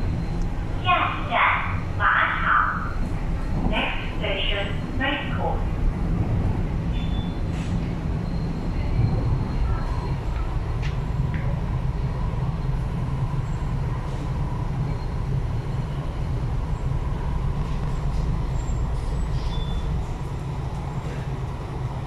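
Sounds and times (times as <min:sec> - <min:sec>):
train wheels rumbling: 0:00.0 - 0:22.0.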